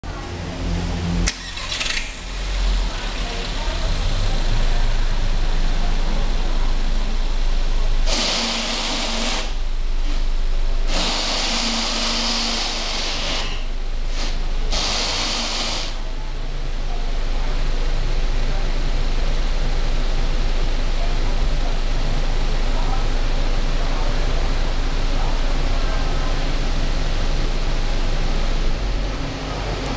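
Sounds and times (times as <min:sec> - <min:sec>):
car engine idling: 0:00.0 - 0:29.9
hiss: 0:08.1 - 0:10.2, 0:10.9 - 0:16.0.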